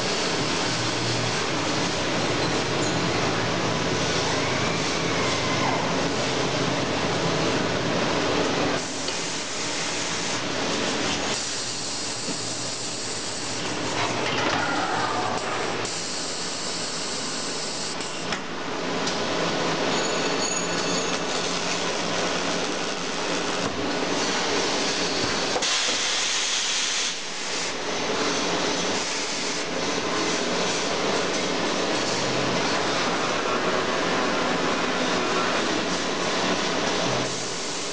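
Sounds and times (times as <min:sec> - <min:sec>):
welding machine hissing: 0:00.0 - 0:07.7, 0:08.6 - 0:14.2, 0:15.0 - 0:18.3, 0:21.1 - 0:37.9.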